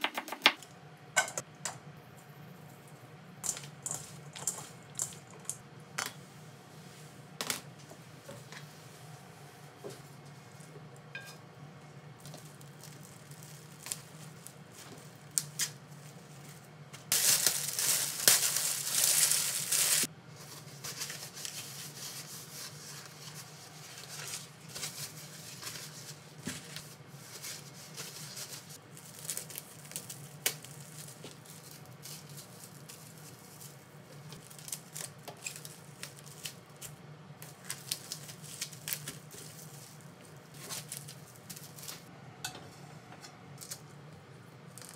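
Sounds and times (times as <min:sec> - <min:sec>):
low steady hum: 0:00.6 - 0:44.9
plastic film crinkling: 0:12.2 - 0:42.1.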